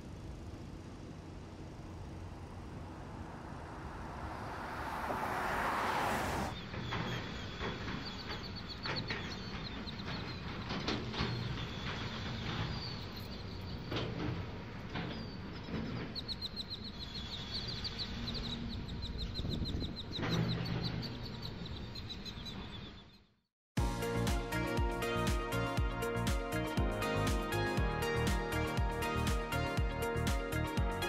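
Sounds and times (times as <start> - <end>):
low machinery rumble: 0.0 - 6.6
bird chirping trills: 6.5 - 14.1, 15.1 - 23.4.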